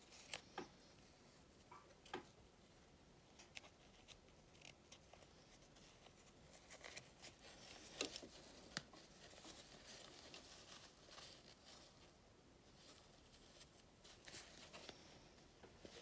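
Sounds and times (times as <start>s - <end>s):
fabric rustling: 3.8s - 16.0s.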